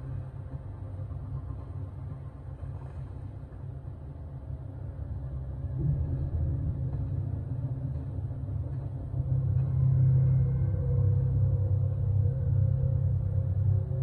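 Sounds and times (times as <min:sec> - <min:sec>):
rumbling suspense score drone: 0:00.0 - 0:14.0.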